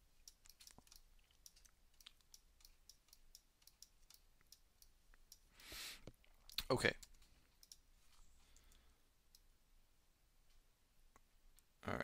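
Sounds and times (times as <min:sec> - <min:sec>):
computer mouse and keyboard clicking: 0:00.2 - 0:05.5.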